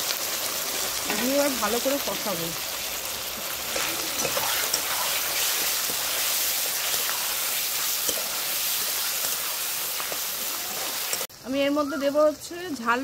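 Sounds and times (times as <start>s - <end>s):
oil sizzling in a pan: 0.0s - 13.0s
spatula scraping a pan: 3.7s - 11.3s.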